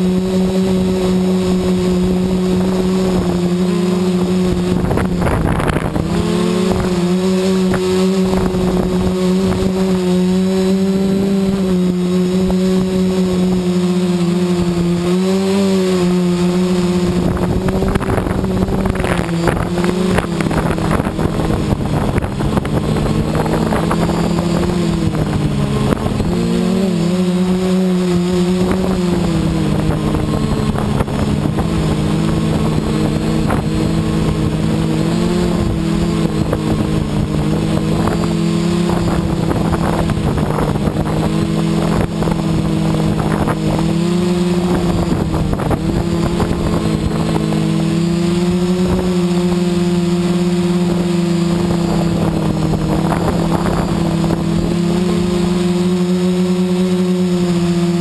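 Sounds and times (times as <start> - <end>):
quadcopter propellers droning: 0.0 - 58.0.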